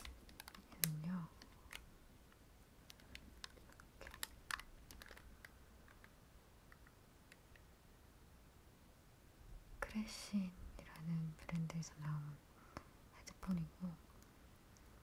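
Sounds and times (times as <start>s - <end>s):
headphones clicking and tapping: 0.0s - 7.7s.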